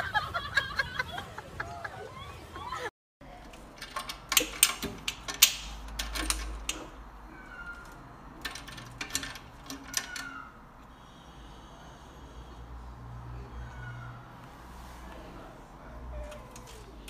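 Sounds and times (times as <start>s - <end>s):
key clicking and rattling in cage lock: 3.4s - 7.0s, 7.6s - 10.4s.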